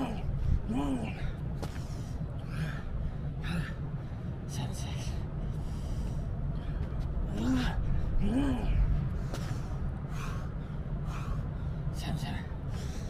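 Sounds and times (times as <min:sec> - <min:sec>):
man grunting: 0:00.0 - 0:01.3, 0:07.3 - 0:08.9
man breathing hard and gasping: 0:00.0 - 0:04.5, 0:05.2 - 0:13.0
steady low rumble: 0:00.0 - 0:13.0.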